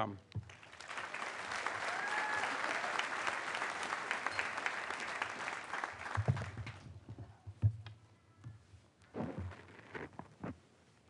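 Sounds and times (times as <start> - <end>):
audience applauding: 0.5 - 6.8.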